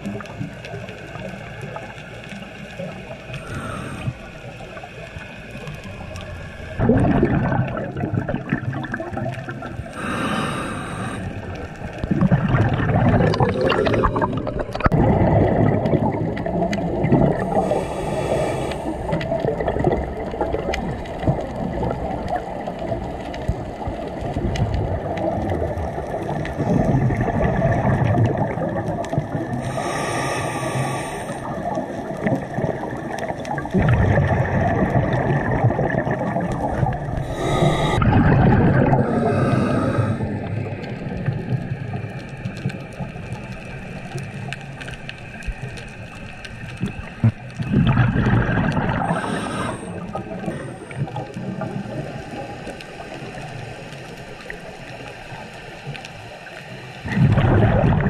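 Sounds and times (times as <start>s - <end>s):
bubbling exhales: 2.8s - 22.7s, 24.4s - 42.1s, 46.2s - 53.3s, 57.0s - 58.0s
diver breathing through regulator: 3.3s - 4.7s, 9.9s - 12.0s, 17.4s - 19.2s, 29.6s - 31.5s, 37.1s - 40.7s, 48.4s - 51.3s.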